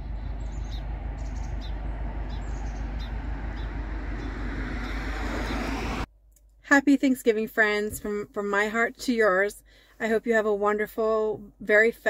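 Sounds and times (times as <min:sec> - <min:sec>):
small birds chirping: 0:00.0 - 0:05.7
low outdoor rumble: 0:00.0 - 0:06.1.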